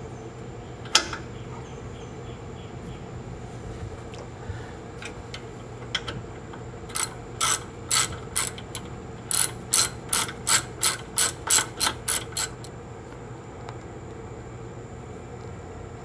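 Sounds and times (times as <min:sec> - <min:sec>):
ratchet wrench clicking: 0:06.9 - 0:12.7.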